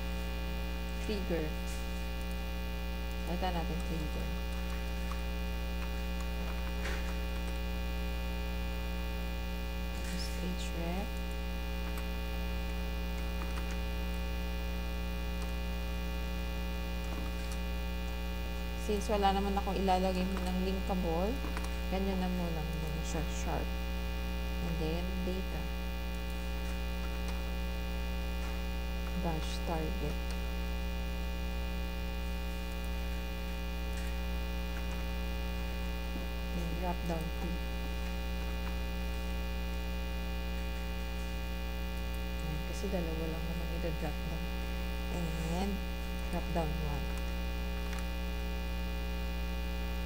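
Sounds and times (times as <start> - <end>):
electrical mains hum: 0.0 - 50.0.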